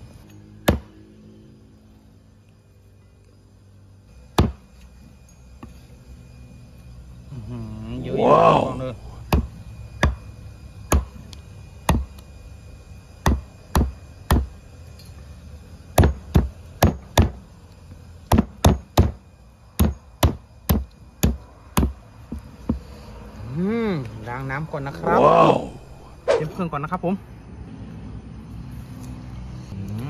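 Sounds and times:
cleaver chopping on wooden block: 0:00.6 - 0:00.9, 0:04.4 - 0:04.7, 0:09.3 - 0:10.2, 0:10.9 - 0:11.2, 0:11.9 - 0:12.1, 0:13.2 - 0:14.5, 0:16.0 - 0:17.4, 0:18.3 - 0:19.2, 0:19.8 - 0:22.0.

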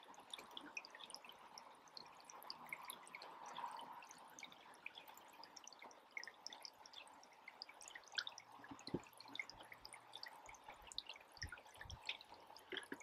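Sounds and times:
epoxy dripping: 0:05.7 - 0:13.0.

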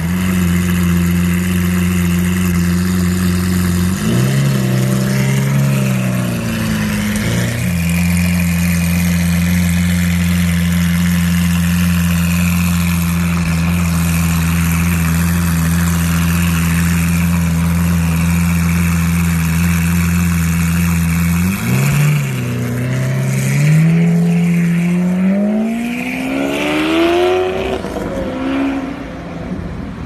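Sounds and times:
sports car engine idling: 0:00.0 - 0:25.8
car accelerating away: 0:03.2 - 0:13.1, 0:20.5 - 0:29.6.

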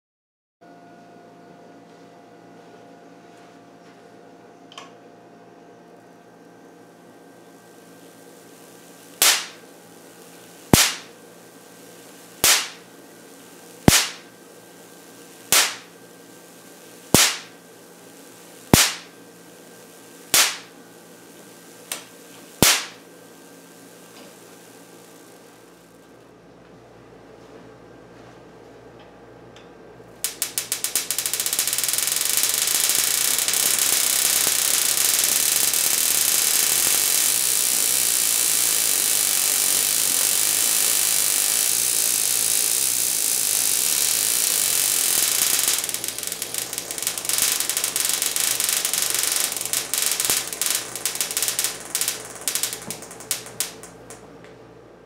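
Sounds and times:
electric sparks crackling: 0:07.7 - 0:26.1, 0:30.2 - 0:54.3.

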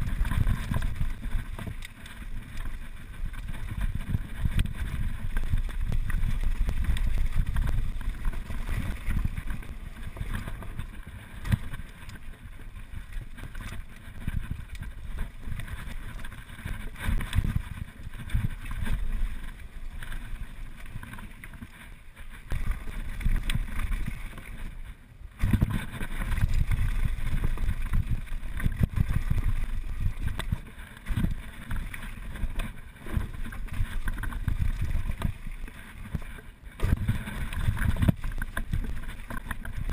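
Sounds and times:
mountain bike rumbling and rattling: 0:00.0 - 0:39.9
wind buffeting microphone: 0:25.3 - 0:36.2.

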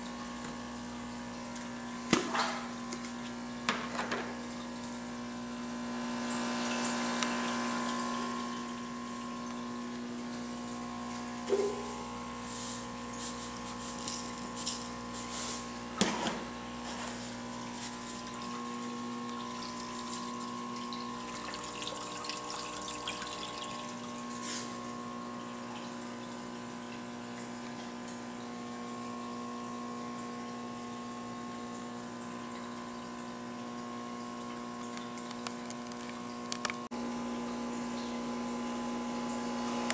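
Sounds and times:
aquarium pump humming: 0:00.0 - 0:39.9
water bubbling and churning: 0:17.6 - 0:24.3
short clicks and splashes: 0:31.7 - 0:36.9.

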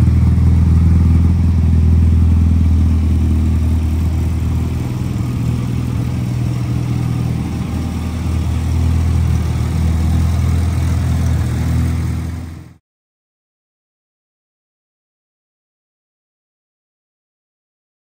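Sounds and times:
car engine idling: 0:00.0 - 0:12.8.

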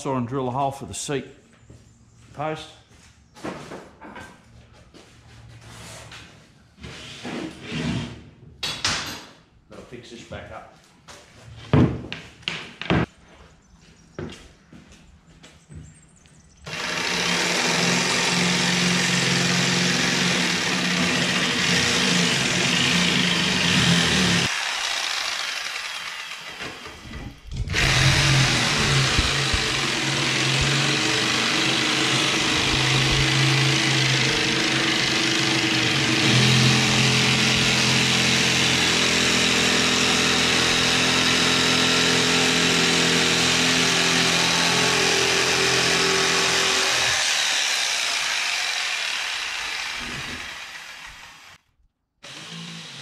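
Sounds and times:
electric jigsaw cutting plywood: 0:16.7 - 0:51.6, 0:52.2 - 0:53.0.

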